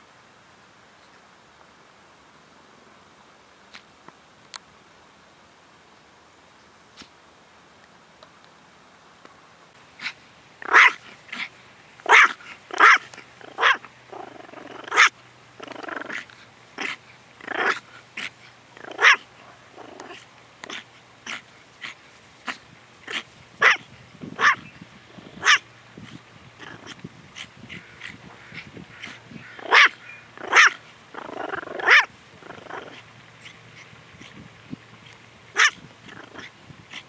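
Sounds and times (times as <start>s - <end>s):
small dog yapping: 10.0s - 15.1s, 15.7s - 23.8s, 24.4s - 24.7s, 25.4s - 25.6s, 26.6s - 33.6s, 35.6s - 37.0s
dog growling: 10.6s - 23.8s, 26.6s - 34.4s, 35.6s - 37.0s.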